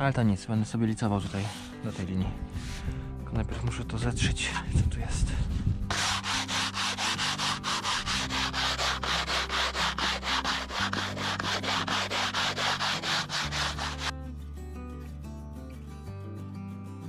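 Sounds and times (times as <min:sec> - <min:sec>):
background music: 0:00.0 - 0:17.0
sanding float rasping on concrete: 0:01.1 - 0:02.8, 0:05.9 - 0:14.2.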